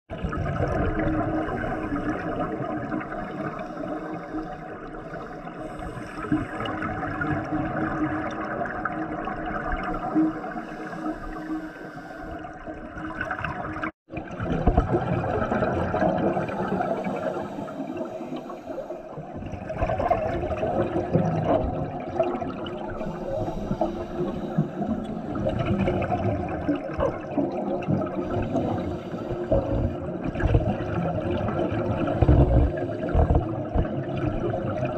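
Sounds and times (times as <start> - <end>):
underwater exhaled bubbles rushing: 0.1 - 11.6, 12.4 - 34.9
diver breathing through regulator: 10.0 - 12.7, 16.3 - 19.2, 23.0 - 25.9, 28.2 - 30.0.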